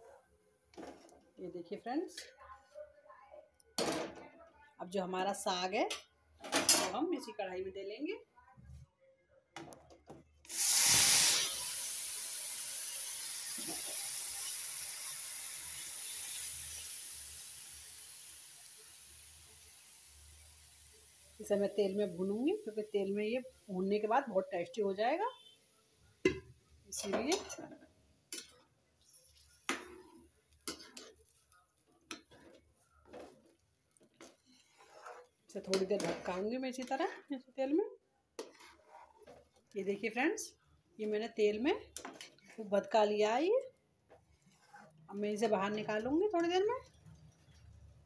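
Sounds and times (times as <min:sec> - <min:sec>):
paste hissing in hot oil: 0:10.5 - 0:24.0
puree frying in oil: 0:10.5 - 0:37.0, 0:44.2 - 0:48.0.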